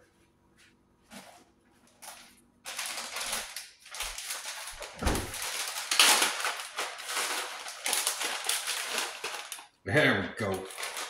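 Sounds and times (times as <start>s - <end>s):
plastic bag crinkling: 1.9s - 9.7s, 10.4s - 11.0s.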